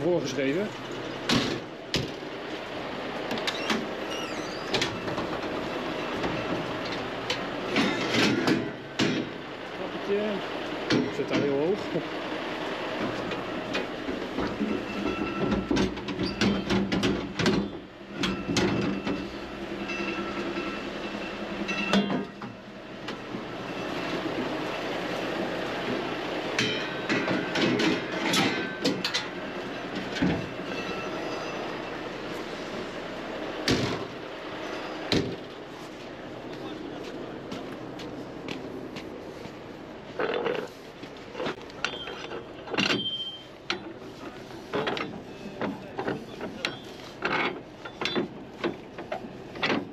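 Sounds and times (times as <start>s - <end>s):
steady mechanical hum: 0.0s - 49.9s
metal ladder clanking and rattling: 7.7s - 9.4s, 14.4s - 19.3s, 21.7s - 22.5s, 26.6s - 31.5s, 46.0s - 49.9s.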